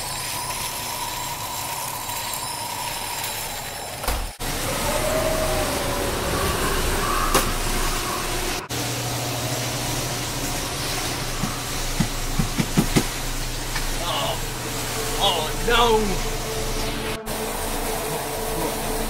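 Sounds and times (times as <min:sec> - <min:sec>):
cold air blowing: 0:04.4 - 0:19.0.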